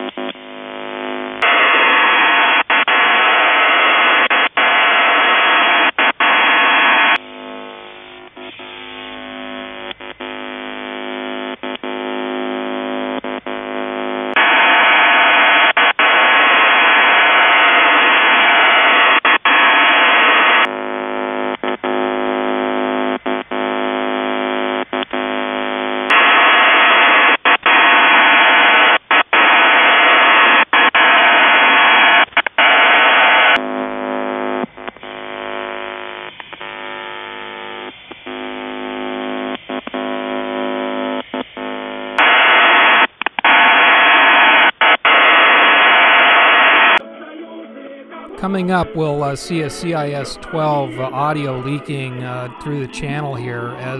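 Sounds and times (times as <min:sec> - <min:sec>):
buzzy chord of steady radio tones: 0:00.0 - 0:53.9
loud radio hiss: 0:48.3 - 0:53.9.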